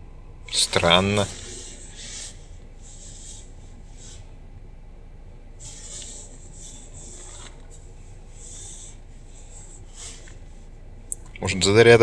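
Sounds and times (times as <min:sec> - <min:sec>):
hand rubbing and rustling: 0:00.5 - 0:04.4, 0:05.5 - 0:11.1.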